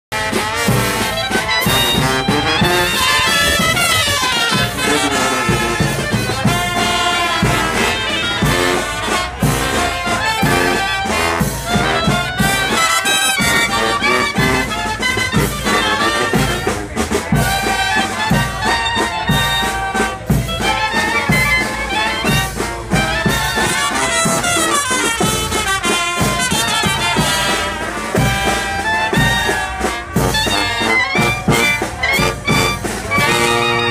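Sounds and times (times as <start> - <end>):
brass band playing: 0.1 - 33.9
sousaphone bass line: 1.4 - 6.7.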